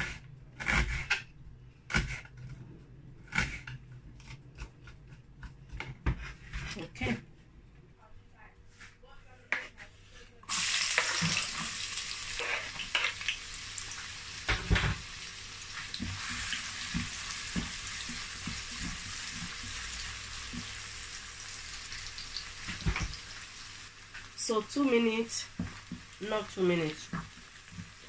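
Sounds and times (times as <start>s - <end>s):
wooden spatula knocking and scraping: 3.3s - 7.2s, 8.8s - 10.0s, 15.7s - 20.8s, 25.5s - 28.0s
onions sizzling in hot oil: 10.5s - 28.0s.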